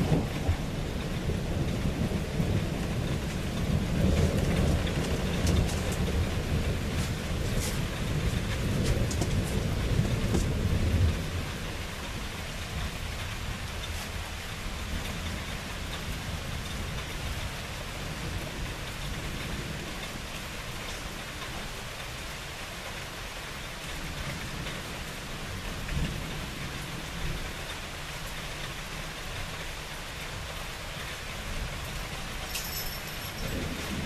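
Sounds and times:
thunder rumbling: 0.0s - 21.7s, 33.3s - 34.0s
steady rain: 0.0s - 34.0s.

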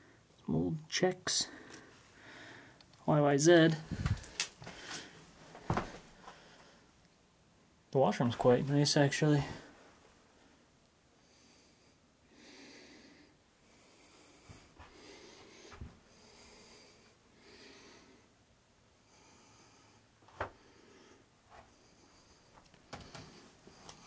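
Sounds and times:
person breathing: 1.4s - 2.8s, 3.8s - 7.0s, 11.2s - 18.4s, 19.0s - 24.0s.

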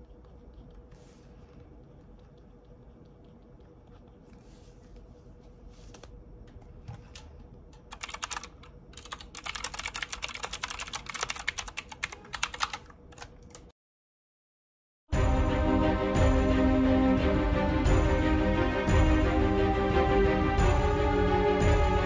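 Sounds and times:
faint steady hum: 0.0s - 13.7s
rapid typing on keyboard: 7.9s - 13.7s.

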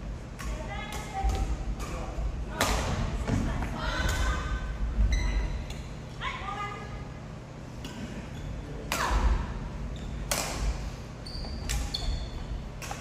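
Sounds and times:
shoes squeaking on wooden court: 5.0s - 5.8s, 7.9s - 8.8s, 9.8s - 13.0s.

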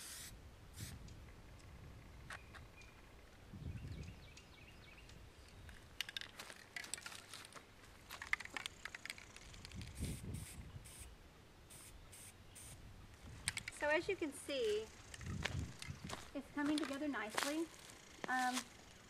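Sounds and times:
aerosol spray can hissing: 0.0s - 0.9s, 9.9s - 11.1s, 11.7s - 12.8s
dry leaves and grass rustling: 5.6s - 10.6s, 13.1s - 19.0s.

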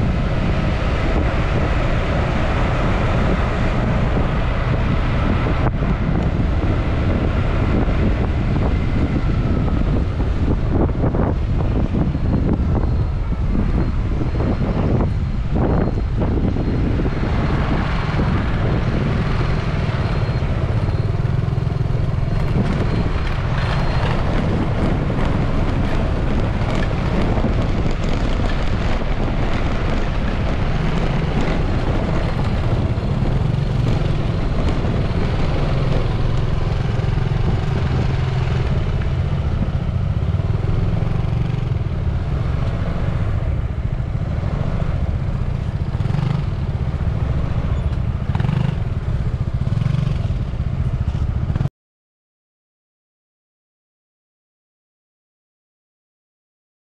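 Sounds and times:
motor scooter engine drone: 0.0s - 51.7s
road and wind noise: 0.0s - 51.7s
tyres rattling over cobblestones: 17.3s - 41.2s.

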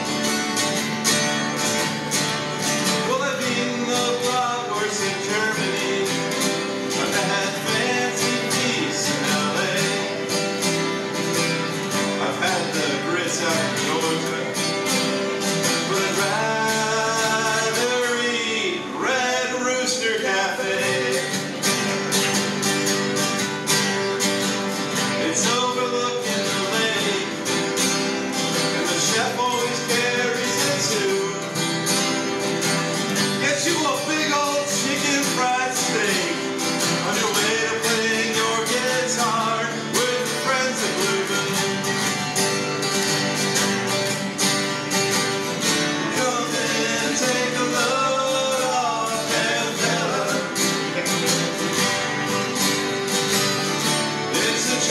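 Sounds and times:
acoustic guitars strumming: 0.0s - 54.9s
man singing: 2.6s - 11.1s, 11.8s - 21.9s, 24.9s - 32.1s, 33.2s - 42.2s, 45.8s - 52.0s, 54.3s - 54.9s.

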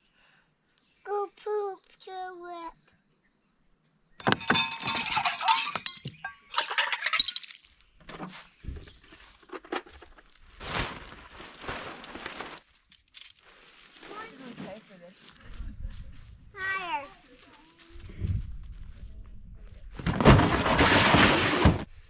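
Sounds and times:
water pouring into metal mugs: 4.2s - 7.5s
plastic bottle crackling: 9.2s - 13.4s
nylon tarp rustling: 10.2s - 15.2s.

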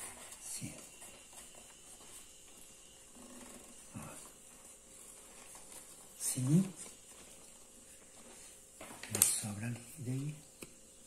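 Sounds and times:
paper tubes rustling: 4.0s - 10.3s.

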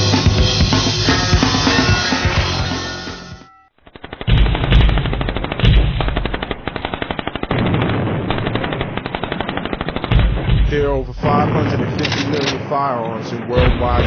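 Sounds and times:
automatic gunfire: 3.8s - 12.7s.

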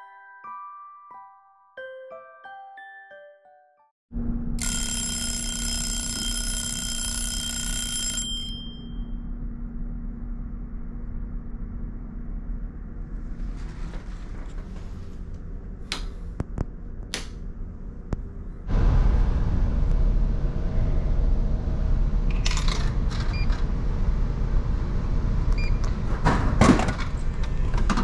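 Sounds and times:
shrill alarm ringing: 4.6s - 9.3s
low engine drone: 8.8s - 28.0s.

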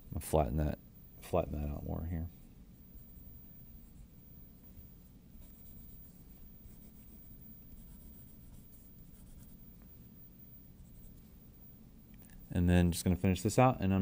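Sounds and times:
pencil scratching on paper: 2.3s - 9.8s, 10.7s - 11.6s.

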